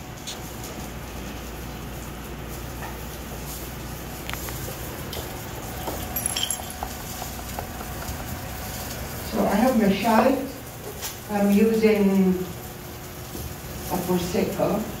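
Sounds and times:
metallic clink: 5.8s - 7.4s.

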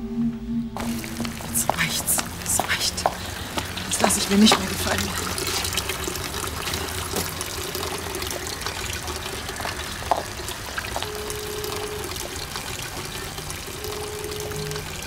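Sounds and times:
water trickling into basin: 0.8s - 15.0s
telephone ringback tone: 11.0s - 12.2s, 13.8s - 15.0s.

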